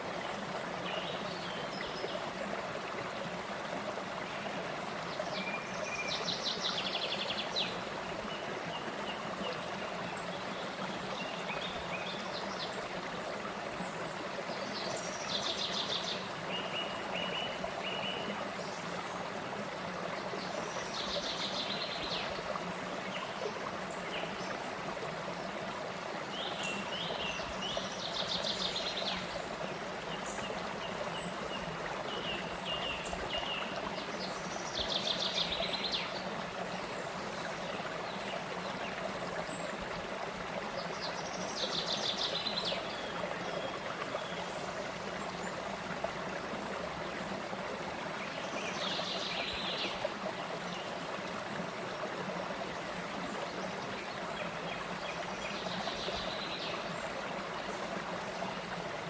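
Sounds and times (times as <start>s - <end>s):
stream flowing over rocks: 0.0s - 59.0s.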